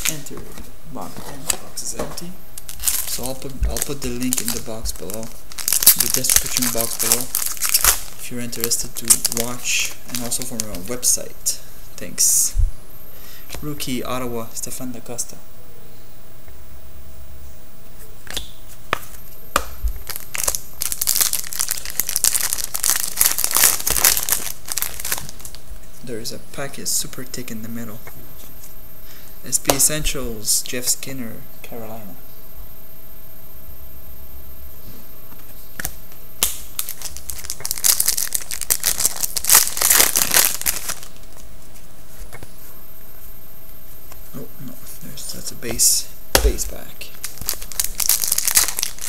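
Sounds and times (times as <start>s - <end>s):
foil pack crinkling and tearing: 2.6s - 11.0s, 20.0s - 25.6s, 35.8s - 41.4s, 47.2s - 49.0s.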